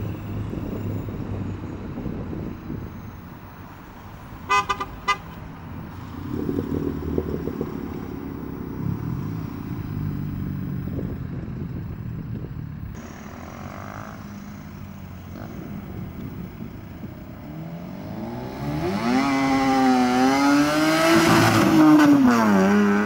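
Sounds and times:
car engines accelerating: 0:00.0 - 0:23.0
car horn tooting: 0:04.5 - 0:05.4.

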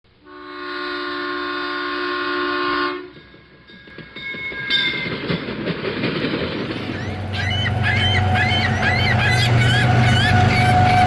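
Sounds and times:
locomotive air horn chord: 0:00.2 - 0:03.2, 0:07.2 - 0:11.0
rail cars rolling by: 0:02.2 - 0:11.0
wheels clicking over rails: 0:03.1 - 0:11.0
high rail squeals: 0:06.6 - 0:11.0.

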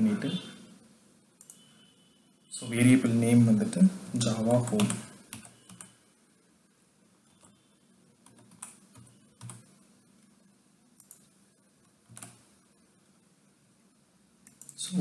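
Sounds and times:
faint keyboard typing: 0:01.4 - 0:01.7, 0:04.2 - 0:06.0, 0:07.2 - 0:07.6, 0:08.2 - 0:12.7, 0:14.4 - 0:15.0.

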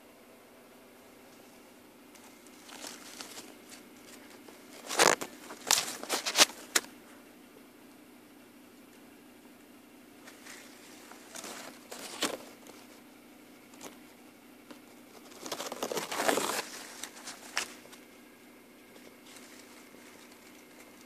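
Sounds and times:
faint steady hum: 0:00.0 - 0:21.0
rustling crackling noise: 0:01.2 - 0:06.9, 0:10.2 - 0:21.0.

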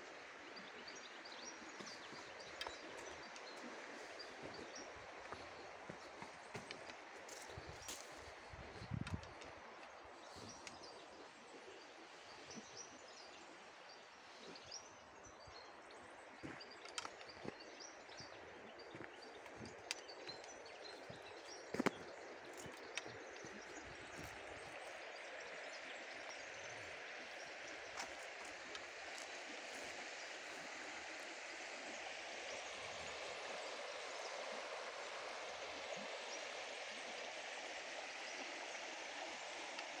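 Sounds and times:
small birds chirping: 0:00.0 - 0:40.0
stream running over stones: 0:00.0 - 0:40.0
footsteps on path: 0:04.0 - 0:09.4, 0:18.9 - 0:24.5, 0:27.9 - 0:30.2.

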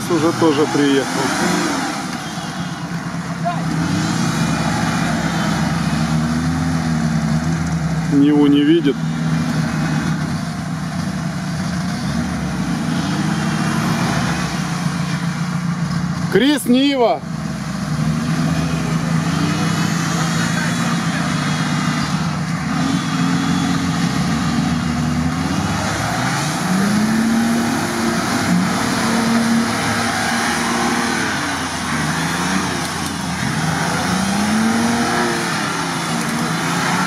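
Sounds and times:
off-road engine revving: 0:00.0 - 0:37.0
wheels churning in mud: 0:17.9 - 0:37.0.

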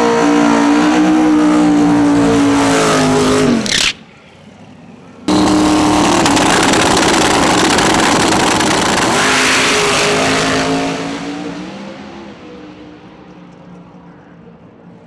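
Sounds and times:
drag car engine at full throttle: 0:00.0 - 0:04.0, 0:05.3 - 0:13.3.

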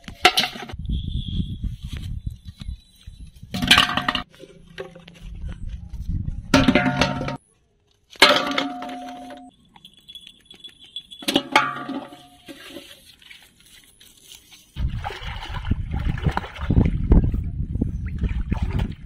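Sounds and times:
objects clanking into metal pot: 0:03.6 - 0:05.0, 0:06.6 - 0:07.4, 0:11.2 - 0:13.0
water sloshing: 0:14.7 - 0:17.4.

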